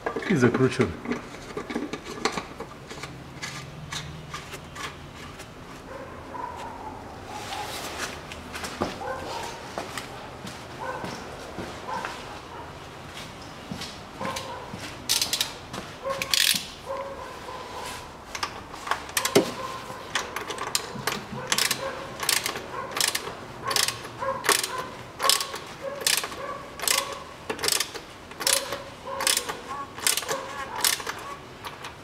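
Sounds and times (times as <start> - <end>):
ratchet wrench clicking: 15.1 - 15.6, 16.2 - 16.7, 18.3 - 19.4, 20.1 - 31.9.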